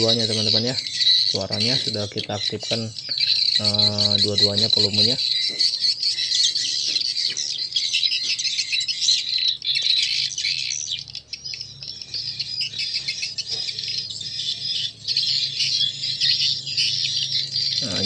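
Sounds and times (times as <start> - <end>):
recorded bird chirps and twitters: 0.0 - 18.0.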